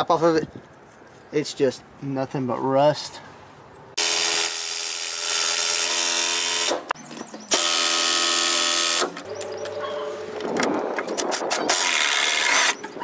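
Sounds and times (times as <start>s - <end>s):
impact wrench bursts: 4.0s - 9.2s.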